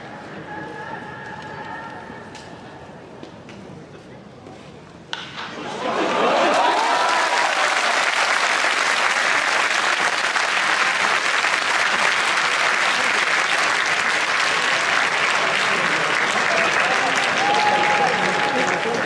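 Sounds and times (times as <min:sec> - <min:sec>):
crowd applauding: 0:06.0 - 0:19.0.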